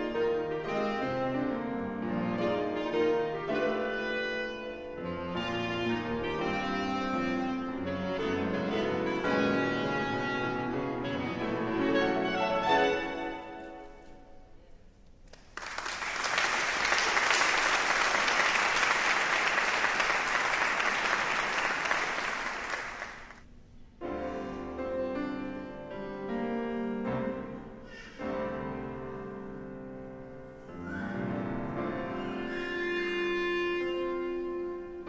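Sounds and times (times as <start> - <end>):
piano and clarinet music: 0.0 - 14.2, 24.0 - 35.0
audience applauding: 15.2 - 23.4.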